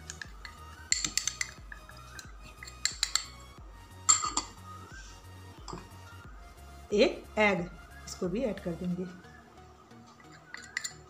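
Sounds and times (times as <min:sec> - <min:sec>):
metal spoon clinking on glass bowl: 0:00.9 - 0:01.6, 0:02.5 - 0:03.4, 0:10.3 - 0:11.0.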